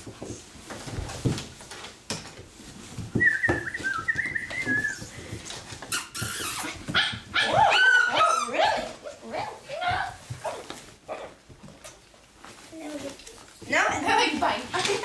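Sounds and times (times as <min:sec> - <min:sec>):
puppy whining and yipping: 0:05.9 - 0:08.9.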